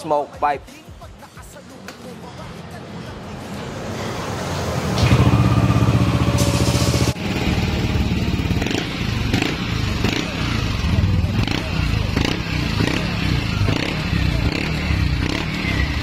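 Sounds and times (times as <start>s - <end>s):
scooter engine revving and idling: 5.0s - 16.0s.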